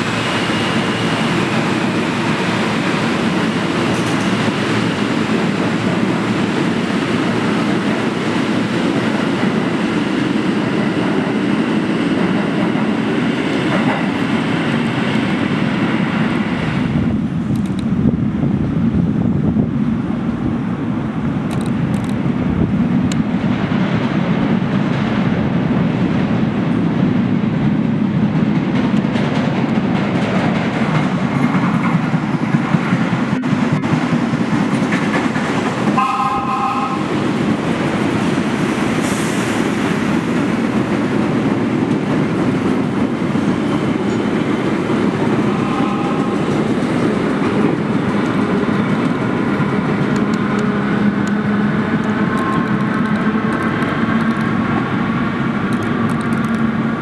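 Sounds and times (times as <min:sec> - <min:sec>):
subway train wheel clatter: 0:00.0 - 0:57.0
train horn blast: 0:35.9 - 0:37.2, 0:45.5 - 0:46.5.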